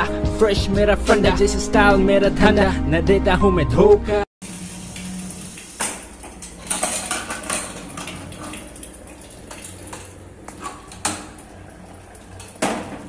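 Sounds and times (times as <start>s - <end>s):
metal lid clinks and clatters: 6.4s - 7.8s.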